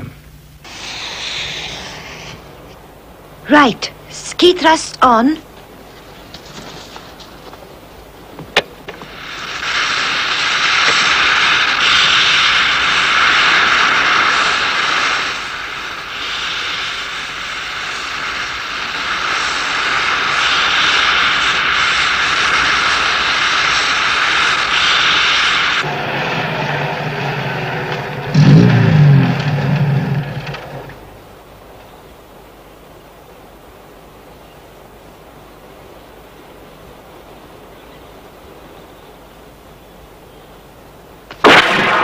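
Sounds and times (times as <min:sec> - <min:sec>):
loud jet hiss: 0:00.0 - 0:31.5
low hum: 0:00.0 - 0:32.6.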